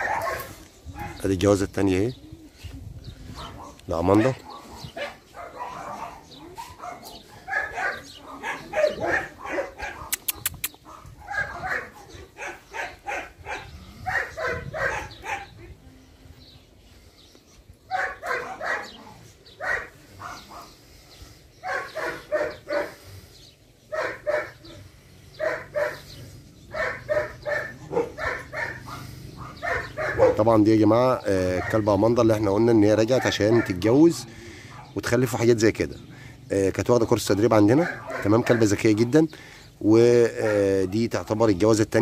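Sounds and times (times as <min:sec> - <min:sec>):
dog yelping: 0:00.0 - 0:01.2, 0:03.4 - 0:15.5, 0:17.9 - 0:20.7, 0:26.7 - 0:30.4, 0:33.2 - 0:33.8, 0:37.8 - 0:38.7.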